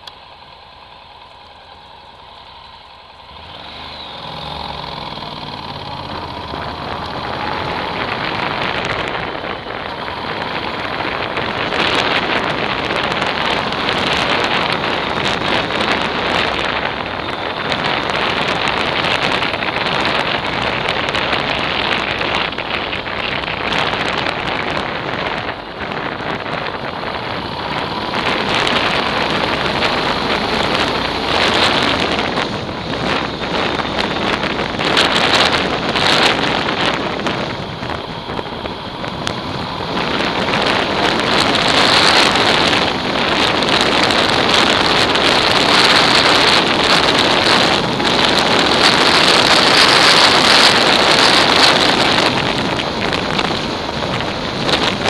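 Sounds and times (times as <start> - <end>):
wind buffeting microphone: 3.6 - 55.0.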